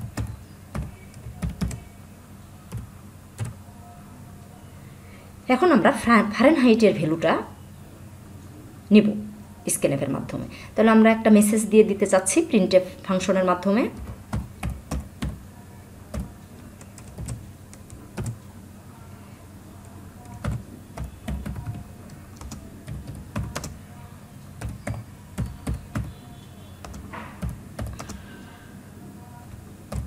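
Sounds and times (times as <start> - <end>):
keyboard typing clicks: 0.0 - 1.8, 14.0 - 15.4, 16.1 - 18.4, 19.8 - 23.8, 24.6 - 26.2, 26.8 - 28.2.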